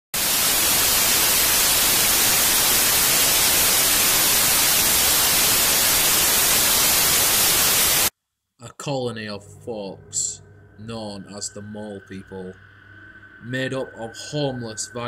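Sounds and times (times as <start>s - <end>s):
television static hiss: 0.2s - 8.1s.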